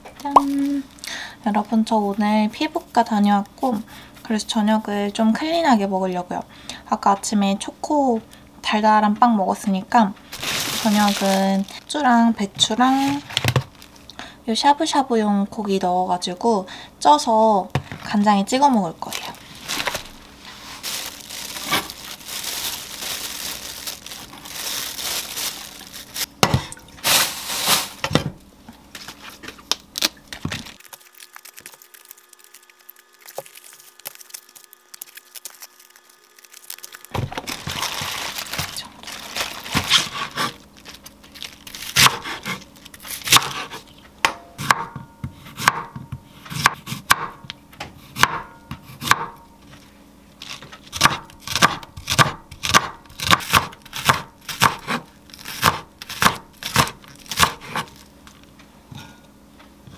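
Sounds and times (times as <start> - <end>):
plastic bag crinkling: 0.2 - 1.3, 10.2 - 14.2, 19.0 - 28.1, 29.0 - 42.0, 42.6 - 43.3, 57.0 - 58.6
cabbage leaves pulled apart: 10.3 - 12.1, 19.0 - 26.4, 27.0 - 28.0, 29.0 - 43.9.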